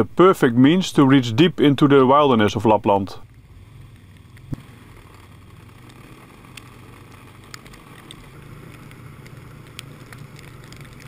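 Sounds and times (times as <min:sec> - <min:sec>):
snowmobile engine droning: 0:01.9 - 0:11.0
faint clicks: 0:03.2 - 0:11.0.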